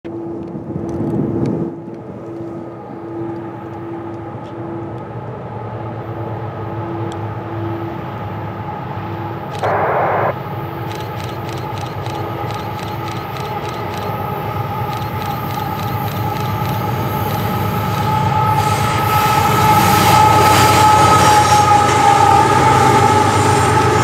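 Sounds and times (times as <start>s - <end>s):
distant locomotive engine rumble: 0.1s - 24.0s
loud burst: 9.6s - 10.4s
steady tones: 9.6s - 10.4s
quick clicks: 10.8s - 14.2s.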